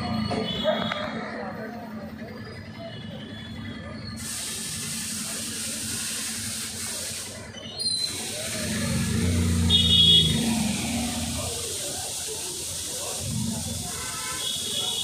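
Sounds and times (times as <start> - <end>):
water hissing: 4.2 - 15.0.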